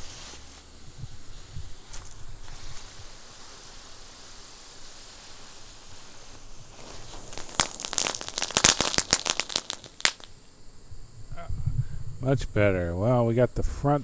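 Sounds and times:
firework crackling pops: 0.0s - 10.6s
firework hissing: 0.0s - 11.1s.

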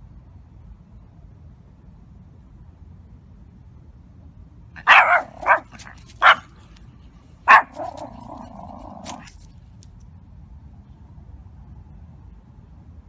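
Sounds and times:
small dog barking: 4.8s - 6.6s, 7.4s - 9.4s.

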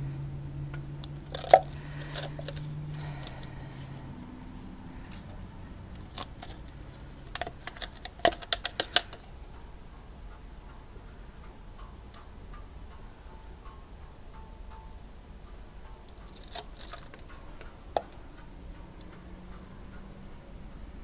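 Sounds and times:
plastic cup clicking and crackling: 1.0s - 3.5s, 5.1s - 9.3s, 16.2s - 18.2s.

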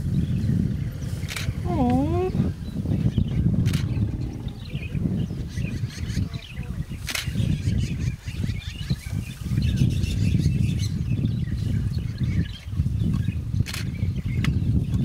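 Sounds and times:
small birds chirping: 0.0s - 15.0s
low rumbling background noise: 1.6s - 6.6s.

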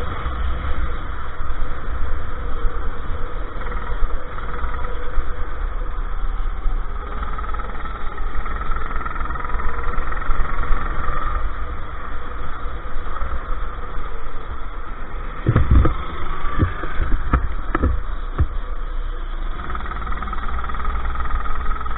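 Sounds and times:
go-kart engine racing: 0.0s - 21.9s
low rumble: 0.0s - 21.9s
heavy low thumps: 15.4s - 18.6s.

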